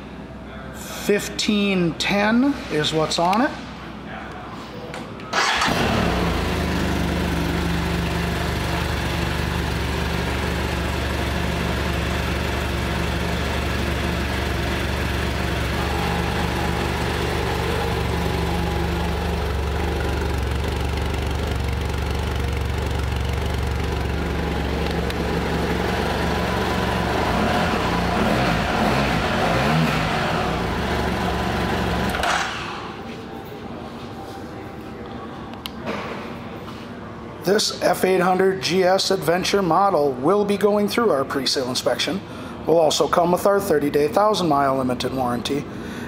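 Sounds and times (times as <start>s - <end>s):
motorcycle engine idling: 5.7s - 29.6s, 30.2s - 32.1s.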